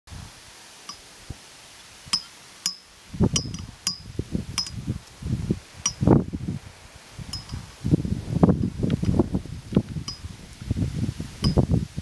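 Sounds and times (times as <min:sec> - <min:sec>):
wind buffeting microphone: 0:03.0 - 0:12.0.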